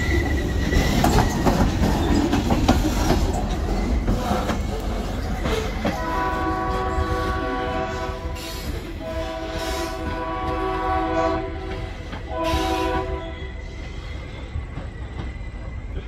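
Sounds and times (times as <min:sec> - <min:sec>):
freight cars rumbling on rails: 0:00.0 - 0:16.0
locomotive air horn: 0:05.9 - 0:13.6.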